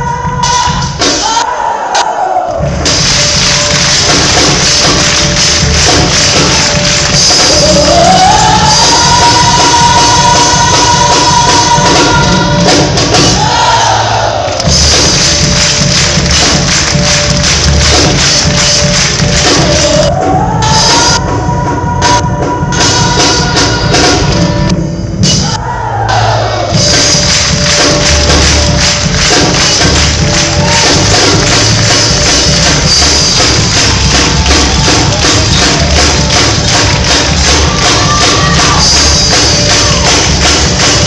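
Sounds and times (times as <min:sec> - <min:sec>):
crowd singing with live music: 0:05.6 - 0:15.2, 0:19.2 - 0:27.2.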